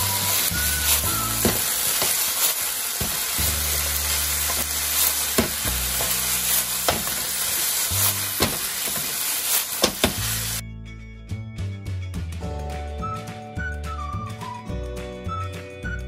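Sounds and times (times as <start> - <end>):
food sizzling in a frying pan: 0.0 - 10.6
spatula scraping and knocking pan: 0.3 - 10.6.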